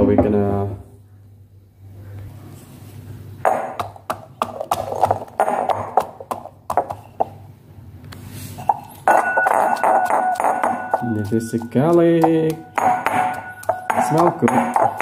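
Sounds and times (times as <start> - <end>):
pestle pounding in metal mortar: 3.5 - 7.4, 8.8 - 15.0.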